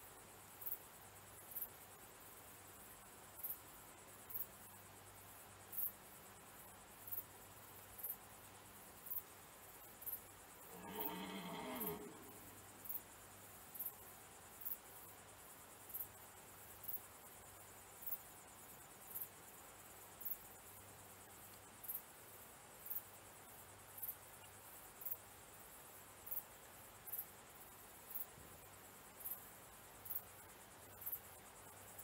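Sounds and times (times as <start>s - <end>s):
crickets chirping: 0.0s - 32.0s
faint high trill: 10.7s - 12.7s.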